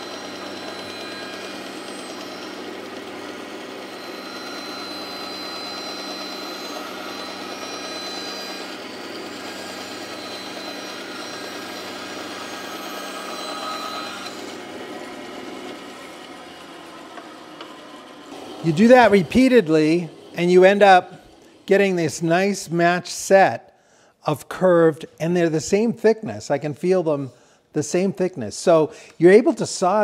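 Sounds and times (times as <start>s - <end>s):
bandsaw cutting wood: 0.0s - 22.2s.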